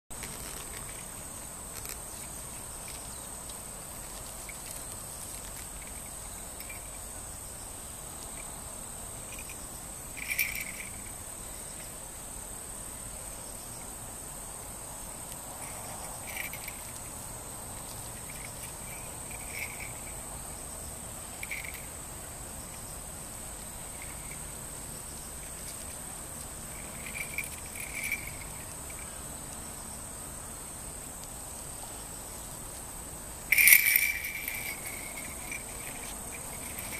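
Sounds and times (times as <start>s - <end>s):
crickets chirring: 0.1s - 36.9s.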